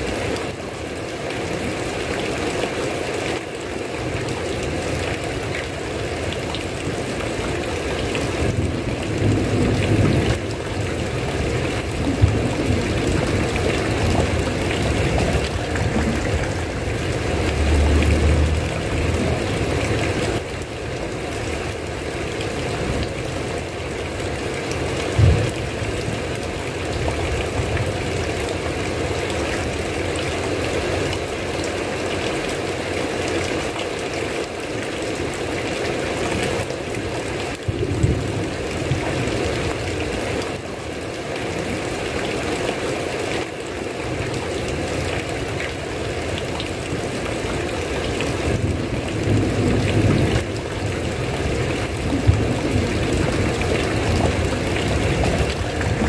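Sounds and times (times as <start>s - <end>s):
heavy rain: 0.0s - 56.0s
thunder rumbling: 8.4s - 19.9s, 51.2s - 56.0s.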